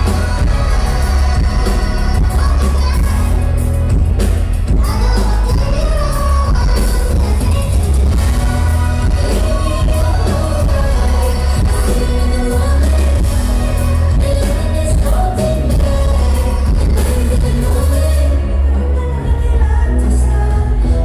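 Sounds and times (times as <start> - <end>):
deep steady bass: 0.0 - 21.0
woman singing: 0.0 - 21.0.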